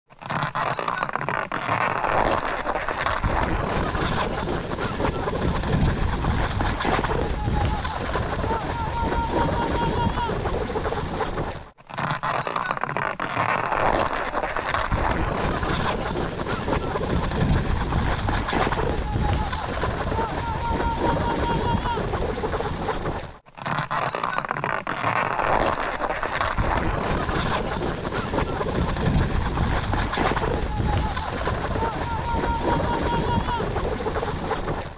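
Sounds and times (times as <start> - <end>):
clicks and scrapes: 0.1 - 4.8, 11.4 - 16.5, 23.1 - 31.6
skis sliding over snow: 0.2 - 34.9
wind rumbling on microphone: 2.7 - 11.4, 14.4 - 23.4, 25.6 - 34.9.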